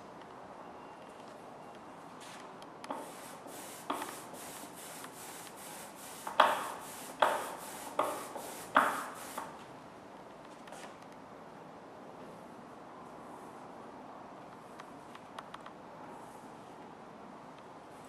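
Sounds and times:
ink roller hissing over ink: 2.9 - 9.6.

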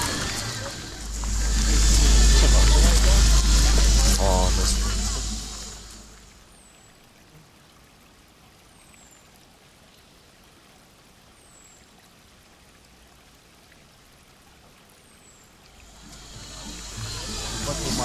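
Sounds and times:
mountain river rushing: 0.0 - 8.7, 15.5 - 18.0.

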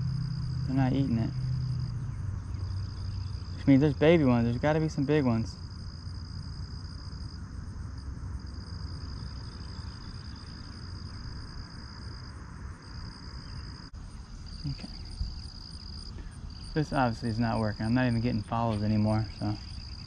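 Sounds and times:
insects trilling: 0.0 - 20.0
low steady rumble: 0.0 - 20.0.

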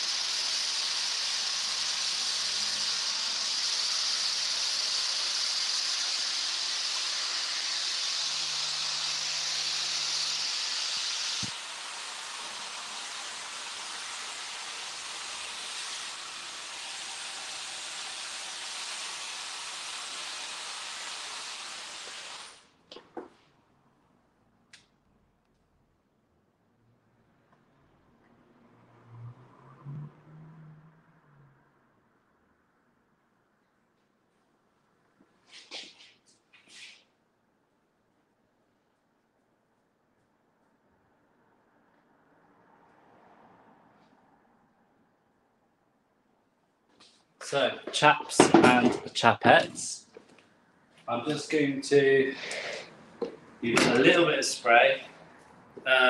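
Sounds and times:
hair dryer blowing: 0.0 - 22.7, 52.2 - 54.7.

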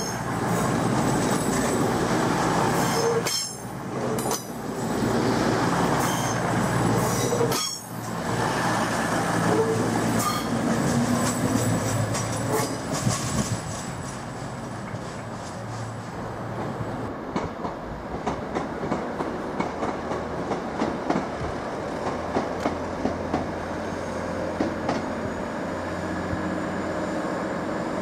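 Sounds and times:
train rumbling on rails: 0.0 - 28.0
wheels squealing on track: 9.4 - 10.6.

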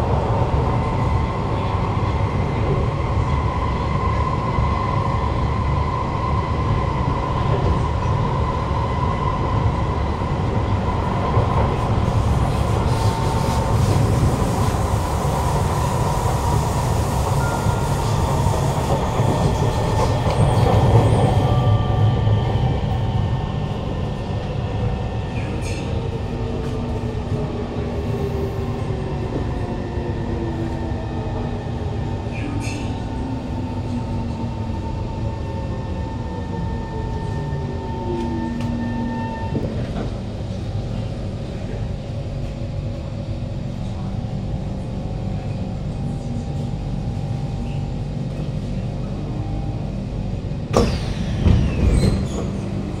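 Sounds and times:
steady hum of train car: 0.0 - 53.0
train doors opening clatter: 50.7 - 53.0.

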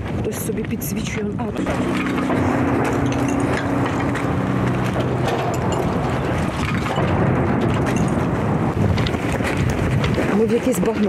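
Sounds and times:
wind rumbling on microphone: 0.0 - 11.0
steady low hum: 0.2 - 9.0.

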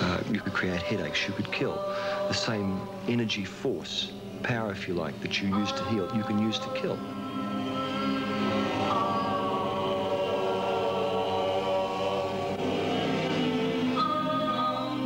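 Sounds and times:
choir singing held notes: 0.0 - 15.0.

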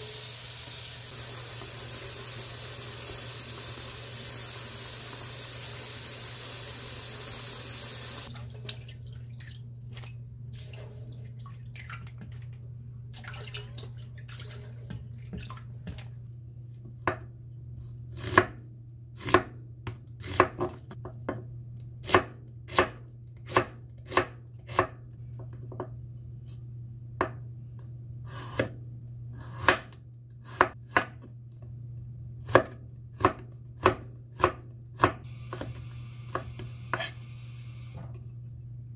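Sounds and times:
water running in a sink: 0.0 - 16.3.

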